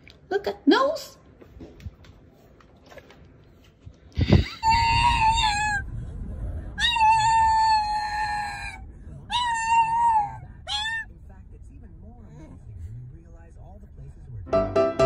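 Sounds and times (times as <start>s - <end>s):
low rumble of car cabin: 4.2s - 14.5s
dog whining howls: 4.5s - 5.9s, 6.8s - 11.1s.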